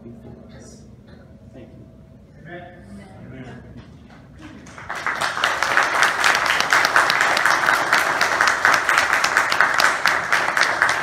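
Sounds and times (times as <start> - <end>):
crowd clapping: 4.1 - 11.0.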